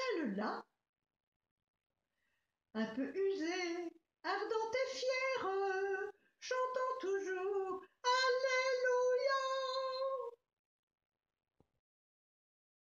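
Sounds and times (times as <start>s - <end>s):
elderly woman singing unaccompanied: 2.8s - 10.4s.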